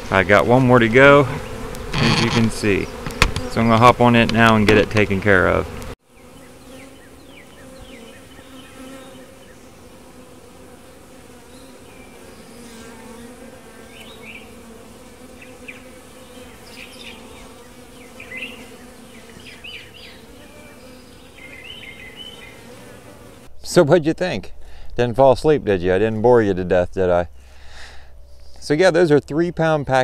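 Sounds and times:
bees buzzing: 0:00.0 - 0:23.6.

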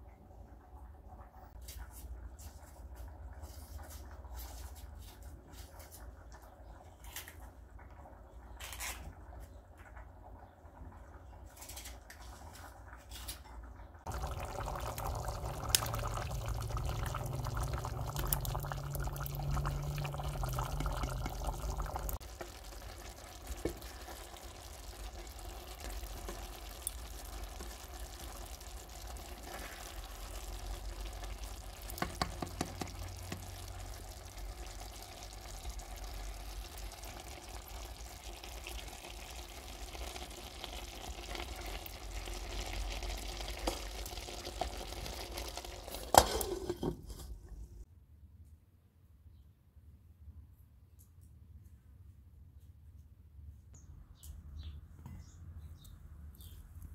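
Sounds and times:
rice simmering: 0:00.0 - 0:47.9
liquid pouring or bubbling: 0:14.0 - 0:46.9
spatula tapping pot: 0:31.9 - 0:33.5.

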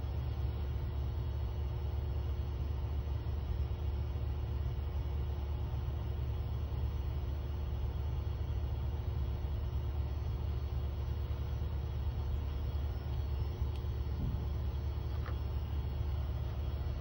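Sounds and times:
laminator motor humming: 0:08.0 - 0:17.0.

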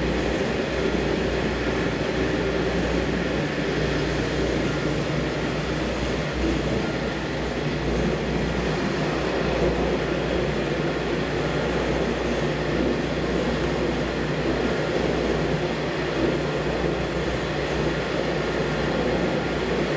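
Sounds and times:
industrial mixer motor humming: 0:00.0 - 0:19.9.

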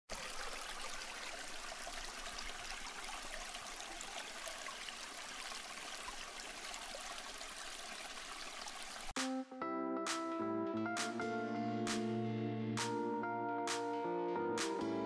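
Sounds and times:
fountain water trickling and splashing: 0:00.1 - 0:09.2.

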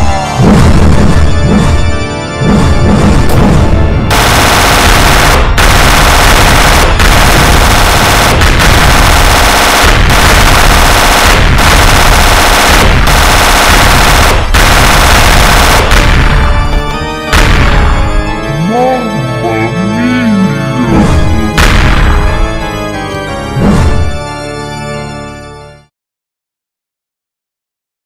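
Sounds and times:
explosion and fire rush: 0:00.4 - 0:18.3, 0:21.1 - 0:22.6.

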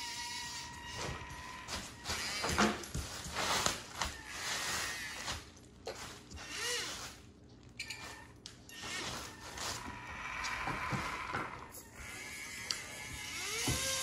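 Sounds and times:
small electric motor whirring: 0:11.7 - 0:14.0.

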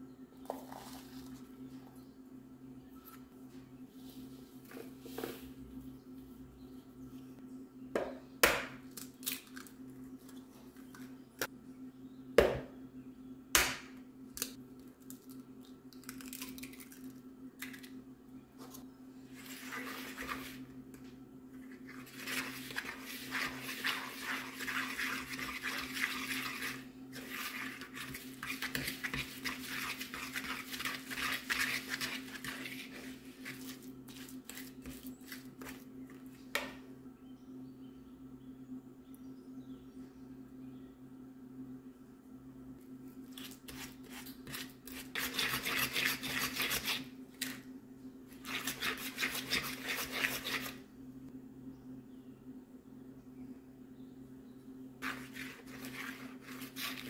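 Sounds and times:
eggs cracking on bowl: 0:14.4 - 0:18.0.

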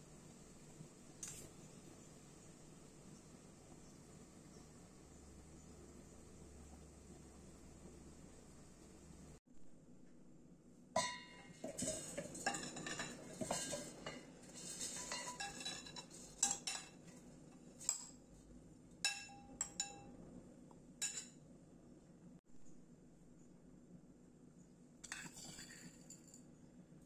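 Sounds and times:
metal spoon scraping bowls: 0:11.0 - 0:18.2, 0:25.0 - 0:26.4.

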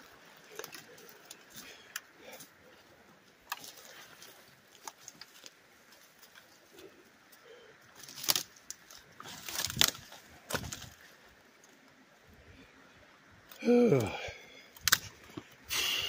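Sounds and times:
branches and undergrowth rustling: 0:00.0 - 0:16.0
twigs snapping: 0:00.1 - 0:02.5, 0:03.4 - 0:11.8, 0:14.7 - 0:15.6.

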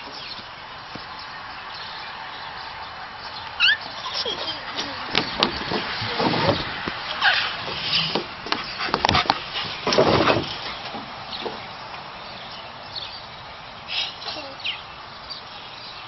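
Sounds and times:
toddler footsteps on wooden deck: 0:03.5 - 0:12.1.

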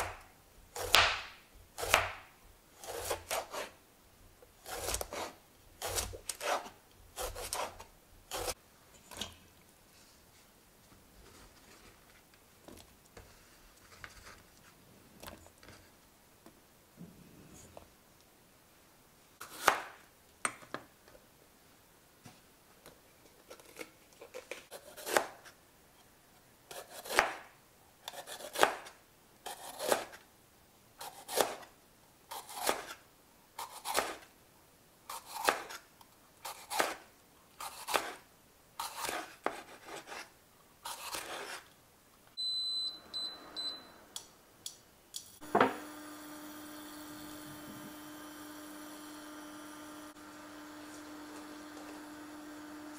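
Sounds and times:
knife cutting on wooden board: 0:01.8 - 0:02.2, 0:02.8 - 0:03.8, 0:04.6 - 0:08.6, 0:29.5 - 0:30.2, 0:31.0 - 0:31.6, 0:33.6 - 0:34.2, 0:35.1 - 0:35.8, 0:36.4 - 0:37.0, 0:37.6 - 0:38.2, 0:38.8 - 0:40.3, 0:40.9 - 0:41.7.

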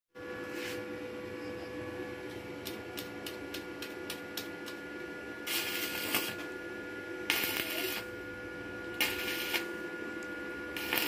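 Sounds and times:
welding arc crackle: 0:05.4 - 0:06.6, 0:07.2 - 0:08.2, 0:08.9 - 0:09.9, 0:10.7 - 0:11.0.

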